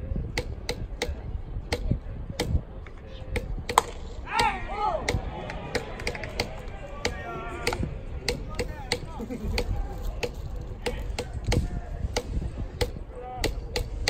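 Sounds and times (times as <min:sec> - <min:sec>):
crowd voices cheering: 0:04.2 - 0:08.4
rhythmic claps: 0:05.1 - 0:09.0.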